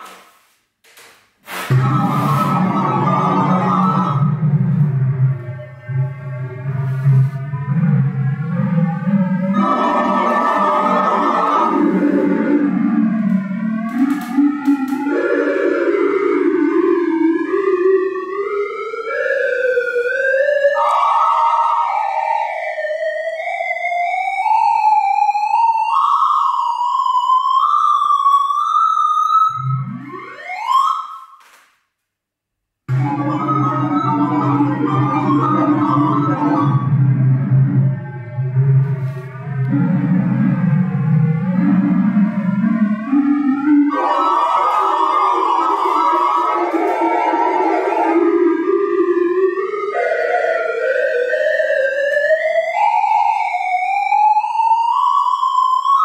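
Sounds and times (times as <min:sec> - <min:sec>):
electronic tone climbing in steps: 0:01.7 - 0:17.7, 0:32.9 - 0:51.1.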